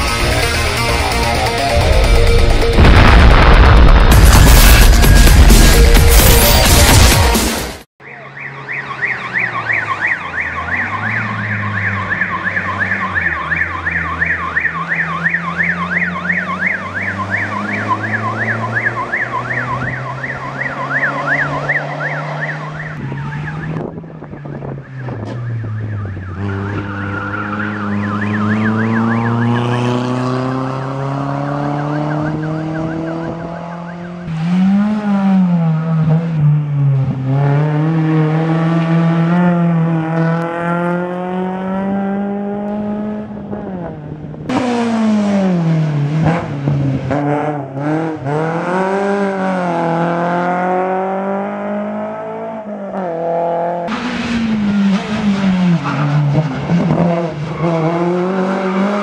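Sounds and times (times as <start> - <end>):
vehicle engine: 0.0 - 59.0
warbling siren: 8.0 - 30.2, 31.6 - 34.3
rally car engine revving: 10.7 - 59.0.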